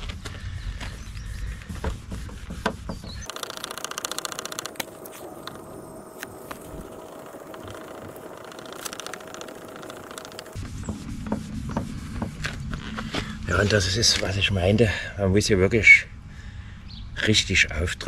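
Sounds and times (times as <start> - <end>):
pad rubbing plastic headlight lens: 1.8 - 11.0
sharp clicks: 3.2 - 10.6.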